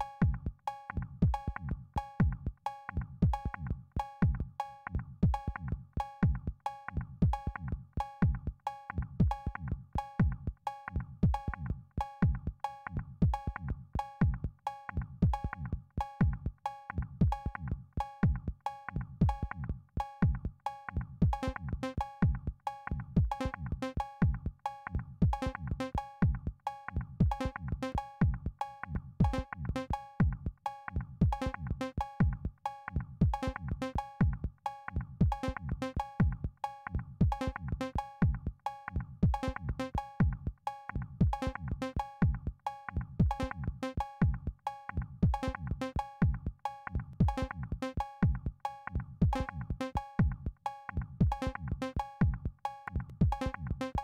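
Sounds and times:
drum machine bass kicks: 0:00.0 - 0:00.6, 0:01.2 - 0:02.6, 0:03.2 - 0:03.6, 0:04.2 - 0:04.5, 0:05.2 - 0:05.6, 0:06.2 - 0:06.6, 0:07.2 - 0:07.6, 0:08.2 - 0:08.6, 0:09.2 - 0:09.6, 0:10.2 - 0:10.6, 0:11.2 - 0:11.6, 0:12.2 - 0:12.6, 0:13.2 - 0:14.6, 0:15.2 - 0:16.6, 0:17.2 - 0:17.6, 0:18.2 - 0:18.6, 0:19.2 - 0:19.5, 0:20.2 - 0:20.6, 0:21.2 - 0:21.6, 0:22.2 - 0:22.6, 0:23.2 - 0:23.5, 0:24.2 - 0:24.6, 0:25.2 - 0:25.6, 0:26.2 - 0:26.6, 0:27.2 - 0:27.5, 0:28.2 - 0:28.6, 0:29.2 - 0:29.5, 0:30.2 - 0:30.6, 0:31.2 - 0:31.6, 0:32.2 - 0:32.6, 0:33.2 - 0:33.5, 0:34.2 - 0:34.6, 0:35.2 - 0:36.6, 0:37.2 - 0:38.6, 0:39.2 - 0:40.6, 0:41.2 - 0:42.6, 0:43.2 - 0:44.6, 0:45.2 - 0:48.6, 0:49.2 - 0:53.8.

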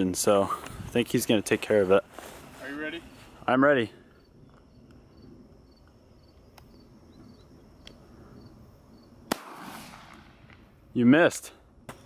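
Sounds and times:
insects chirping: 0:00.0 - 0:12.0
gunshot: 0:09.3 - 0:10.6.

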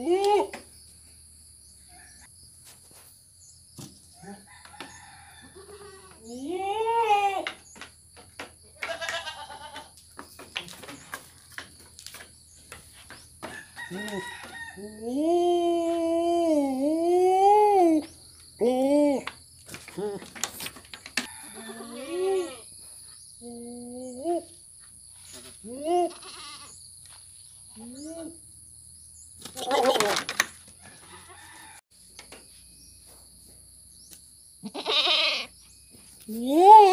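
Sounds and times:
goat bleating: 0:05.6 - 0:07.4, 0:08.8 - 0:09.9, 0:25.7 - 0:26.8, 0:34.6 - 0:35.5.

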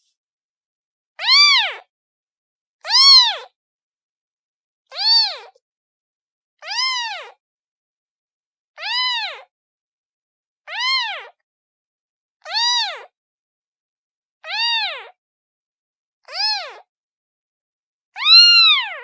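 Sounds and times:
kitten meowing: 0:01.2 - 0:01.9, 0:02.8 - 0:03.5, 0:04.9 - 0:05.6, 0:06.6 - 0:07.4, 0:08.8 - 0:09.5, 0:10.7 - 0:11.4, 0:12.4 - 0:13.1, 0:14.4 - 0:15.1, 0:16.3 - 0:16.9, 0:18.2 - 0:19.0.

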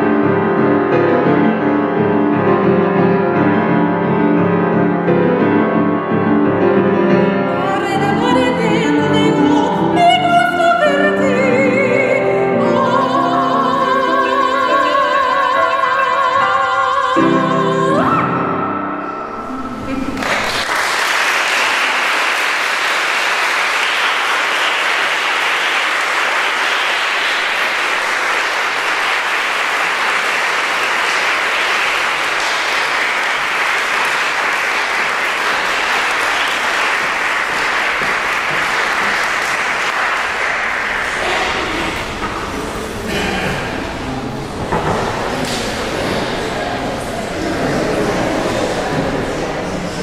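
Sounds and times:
audience applauding: 0:20.1 - 0:50.0.

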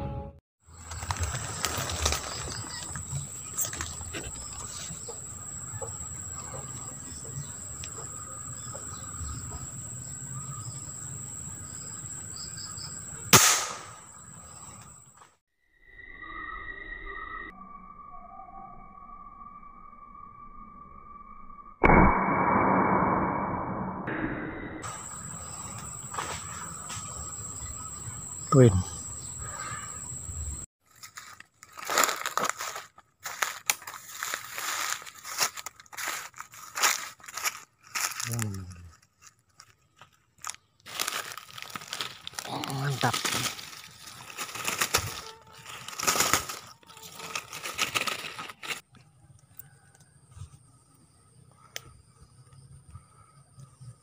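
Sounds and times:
footsteps crunching through dry leaves: 0:00.7 - 0:04.9, 0:30.8 - 0:48.8
high insect trill: 0:00.7 - 0:21.7, 0:24.8 - 0:30.7, 0:40.9 - 0:48.8
rifle shot: 0:13.3 - 0:14.0, 0:21.8 - 0:24.8
high-pitched insect drone: 0:15.7 - 0:21.8.

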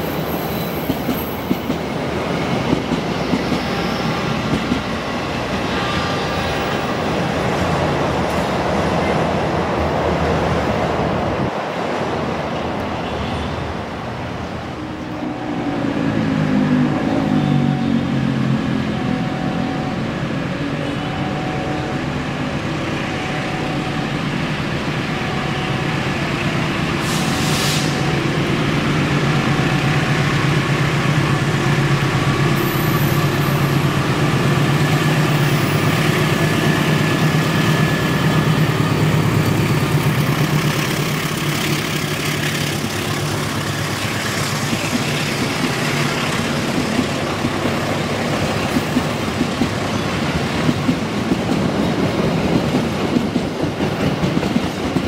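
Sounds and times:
locomotive engine drone: 0:14.3 - 0:51.7.

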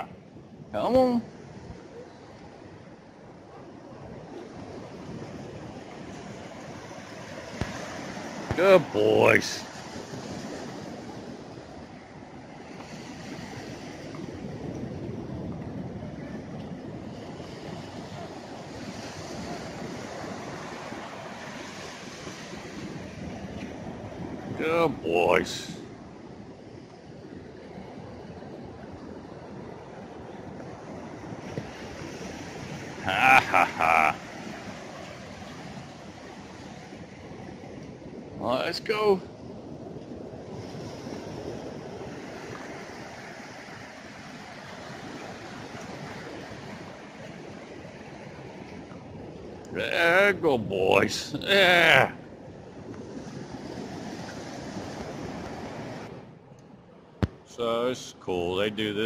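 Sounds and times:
ocean surf breaking on beach: 0:00.0 - 0:59.0
wind: 0:00.0 - 0:59.0.

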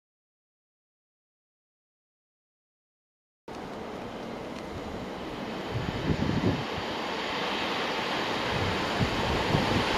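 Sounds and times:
wind on microphone: 0:05.6 - 0:07.0, 0:08.2 - 0:09.9.

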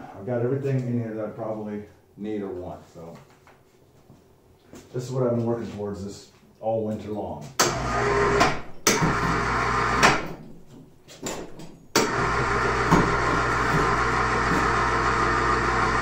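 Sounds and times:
electric hoist motor running: 0:07.6 - 0:10.3, 0:11.9 - 0:16.0.

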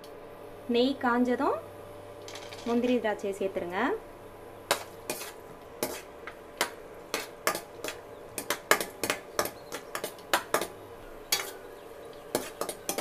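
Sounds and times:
metal spoon scraping a pan: 0:04.7 - 0:11.7, 0:12.3 - 0:13.0.

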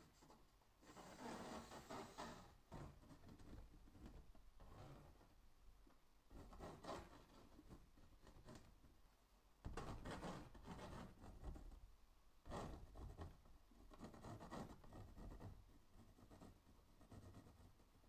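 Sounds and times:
pencil scratching on canvas: 0:00.0 - 0:03.6, 0:06.3 - 0:08.7, 0:09.7 - 0:11.7, 0:12.5 - 0:17.9.

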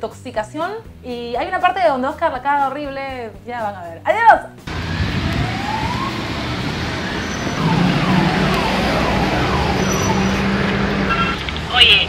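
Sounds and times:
street noise: 0:04.6 - 0:12.0
electronic falling tone: 0:04.7 - 0:10.8.

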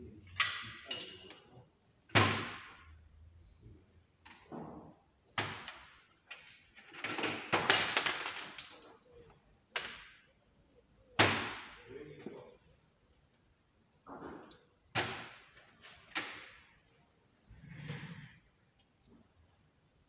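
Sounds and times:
rattling clatter of tools: 0:00.2 - 0:02.8, 0:05.8 - 0:09.1
metal tools clanking on trolley: 0:00.3 - 0:01.6.

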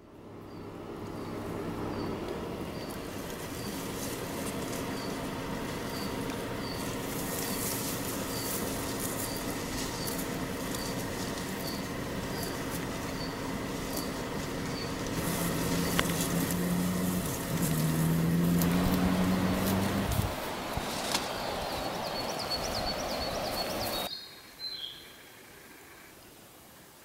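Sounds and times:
light rustling: 0:02.2 - 0:21.4.

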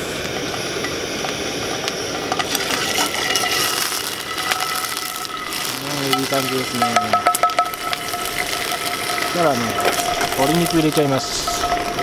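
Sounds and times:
garlic sizzling in oil: 0:00.0 - 0:12.0
gas burner hissing: 0:00.0 - 0:12.0
wooden spatula scraping pan: 0:02.4 - 0:12.0.

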